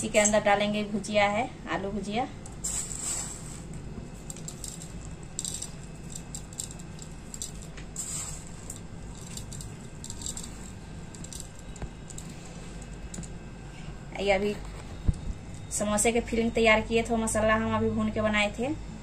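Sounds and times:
steady low hum: 0.0 - 19.0
snack rustling as sprinkled: 2.6 - 13.2.

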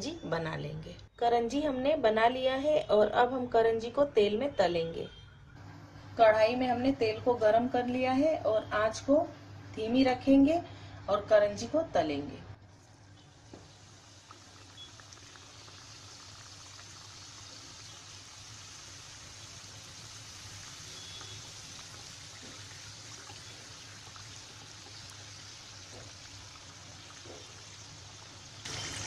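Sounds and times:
oil sizzling while deep-frying: 12.6 - 29.0.

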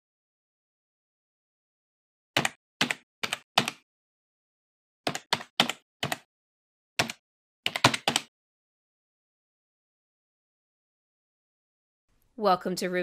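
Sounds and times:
keyboard keystroke clicks: 5.1 - 6.2, 7.0 - 8.3.

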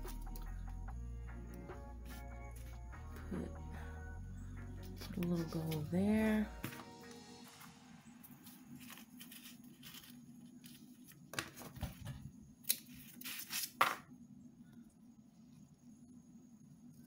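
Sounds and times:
tape rustling: 8.4 - 12.0.

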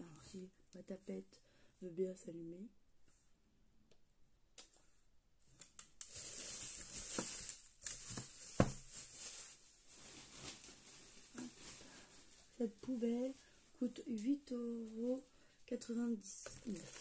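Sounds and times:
plastic bag crinkling: 6.0 - 13.6, 16.3 - 17.0.

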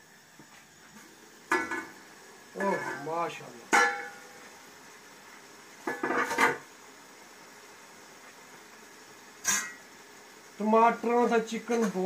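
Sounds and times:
metal kitchenware clanking on pot: 3.7 - 4.2.

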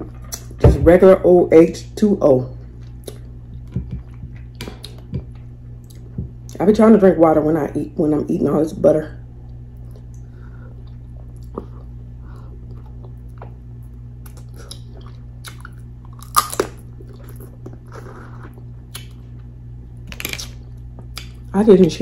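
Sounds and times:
steady low hum: 0.0 - 22.0
person chewing with wet smacks: 2.7 - 6.6, 9.4 - 12.0, 12.6 - 19.5, 20.4 - 21.5.

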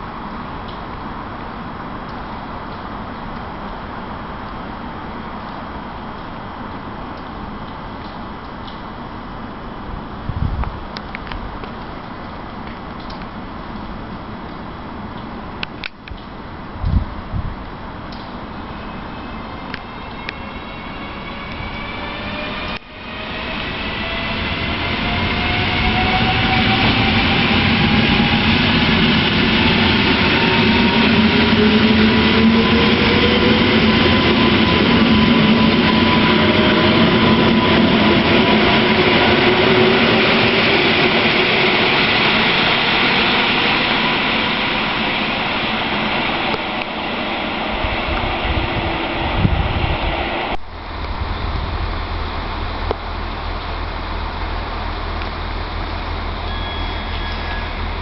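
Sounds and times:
electric train motor whine: 18.6 - 47.0.

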